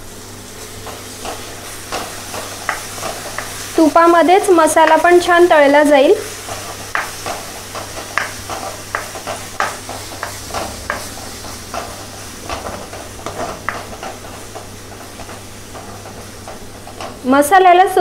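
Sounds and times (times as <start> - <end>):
paste sizzling in oil: 0.0 - 17.4.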